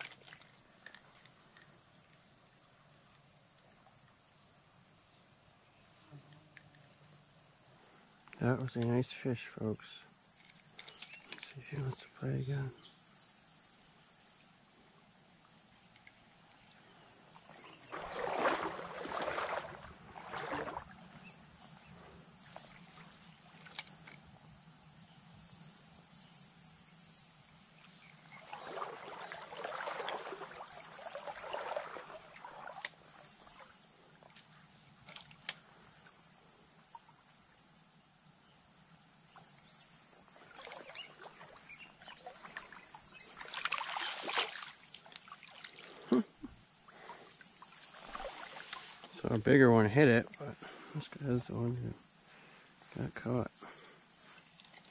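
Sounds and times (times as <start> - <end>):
water splashing and rustling: 0.0 - 3.0, 14.9 - 25.0, 27.3 - 37.1, 39.2 - 54.9
insects buzzing: 0.0 - 54.9.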